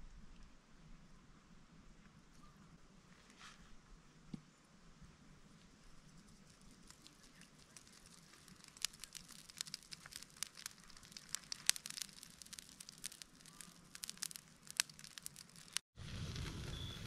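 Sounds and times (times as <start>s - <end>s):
campfire crackling: 5.4s - 17.0s.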